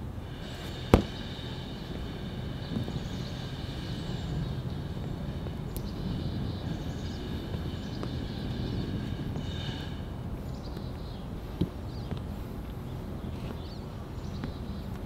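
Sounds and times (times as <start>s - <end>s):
low rumble: 0.0s - 14.9s.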